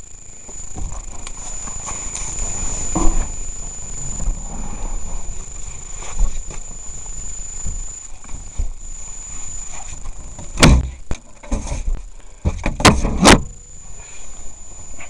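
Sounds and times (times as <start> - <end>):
bangs on camper trailer body: 10.5 - 11.7, 12.4 - 13.6.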